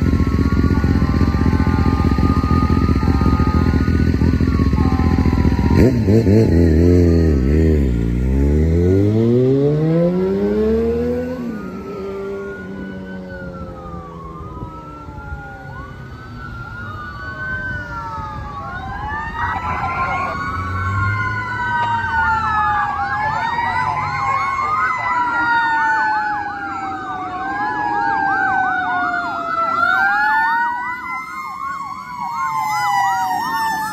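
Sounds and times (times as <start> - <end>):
vehicle engine revving: 0.0 - 13.6
fire engine siren wail: 0.0 - 33.9
siren fast yelp: 0.0 - 33.9.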